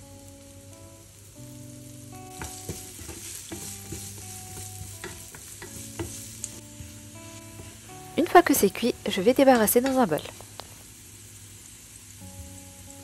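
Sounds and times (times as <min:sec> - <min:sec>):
potatoes sizzling in oil: 0:00.0 - 0:13.0
spatula scraping and tapping pan: 0:02.3 - 0:07.8.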